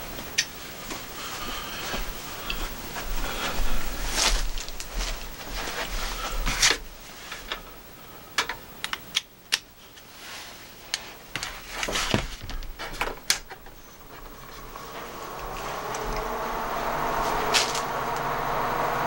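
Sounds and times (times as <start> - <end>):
cable clicks and rustles: 4.0 - 7.8, 10.8 - 18.3.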